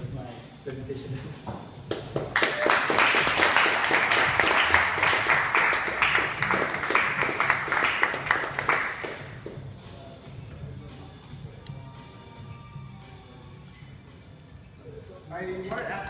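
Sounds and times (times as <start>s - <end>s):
audience applauding: 2.2s - 9.3s.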